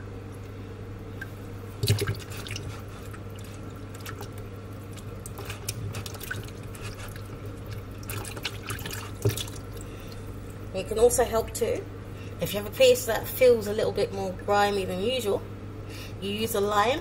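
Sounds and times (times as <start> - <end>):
steady low hum: 0.0 - 17.0
hands rubbing chicken in water: 1.2 - 10.3
water splashing in a bowl: 1.2 - 10.3.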